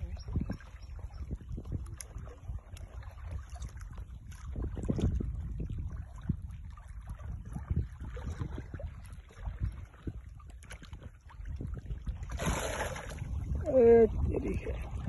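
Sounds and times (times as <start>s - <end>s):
wind buffeting microphone: 0.0s - 15.0s
fish splashing at surface: 12.3s - 13.4s.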